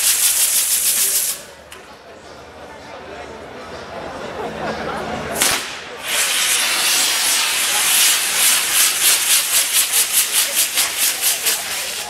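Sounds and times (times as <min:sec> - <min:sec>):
fireworks hissing loudly: 0:00.0 - 0:01.6, 0:05.4 - 0:12.0
firework sharp crack: 0:05.4 - 0:12.0.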